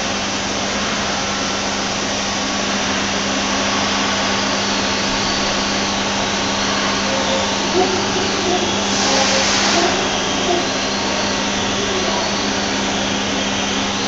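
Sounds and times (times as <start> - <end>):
milling machine motor hum: 0.0 - 14.0
rushing hiss: 4.2 - 14.0.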